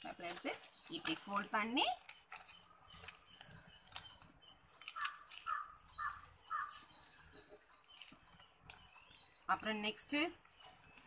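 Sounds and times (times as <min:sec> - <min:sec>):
small animal chirping: 0:00.2 - 0:11.0
paper rustling: 0:02.0 - 0:05.7, 0:07.8 - 0:09.1
lower animal calls: 0:03.5 - 0:09.1.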